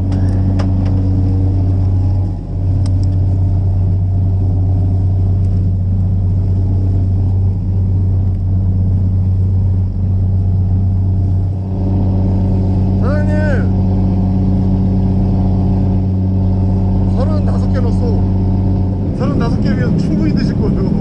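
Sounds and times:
boat engine humming: 0:00.0 - 0:21.0
light clicks: 0:02.8 - 0:03.2.

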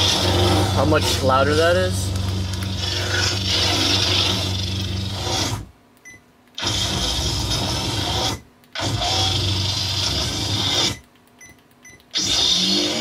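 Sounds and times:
lightsaber low hum: 0:00.0 - 0:05.7.

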